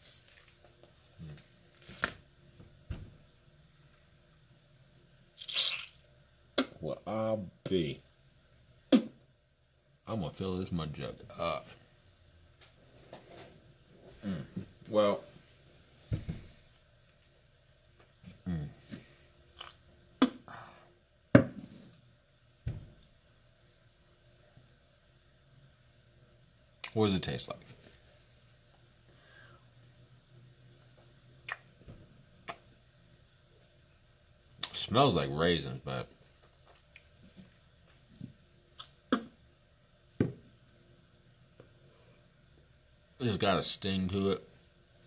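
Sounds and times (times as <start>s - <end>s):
man chewing wetly: 19.5s - 20.0s
loud mouth smacks: 31.4s - 31.7s, 32.4s - 32.6s.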